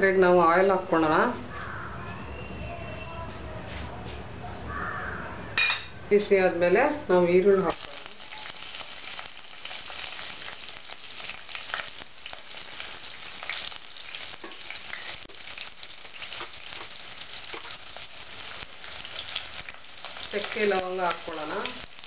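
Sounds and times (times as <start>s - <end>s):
onions sizzling in hot oil: 7.6s - 22.0s.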